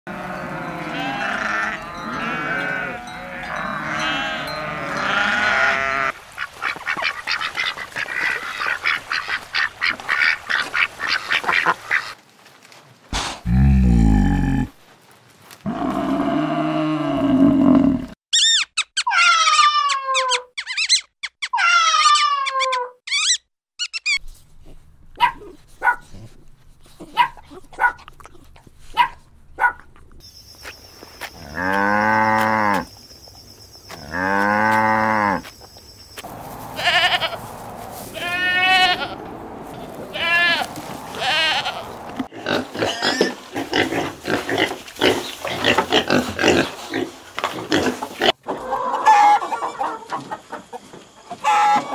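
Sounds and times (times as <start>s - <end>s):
long bleats: 0.1s - 6.1s, 31.4s - 32.9s, 36.6s - 39.2s, 40.1s - 44.6s
young pigs squealing: 0.1s - 12.2s, 18.4s - 24.2s, 40.1s - 47.1s, 51.4s - 51.9s
dog yips and barks: 25.2s - 26.1s, 27.0s - 28.0s, 28.9s - 29.8s.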